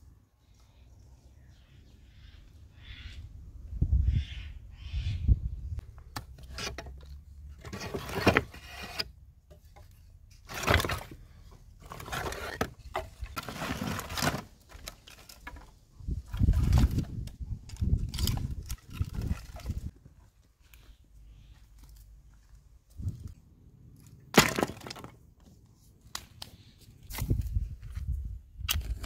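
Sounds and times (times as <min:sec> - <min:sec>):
wooden planks scraping: 0:06.2 - 0:20.0.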